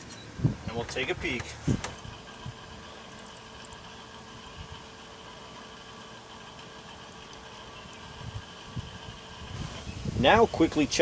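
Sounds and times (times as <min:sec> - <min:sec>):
rotisserie motor humming: 0:00.0 - 0:11.0
wind thumps on microphone: 0:01.4 - 0:02.6, 0:08.2 - 0:10.4.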